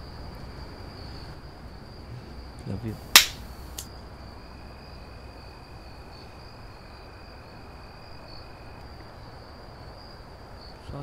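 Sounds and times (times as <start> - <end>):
crickets trilling: 0.0 - 11.0.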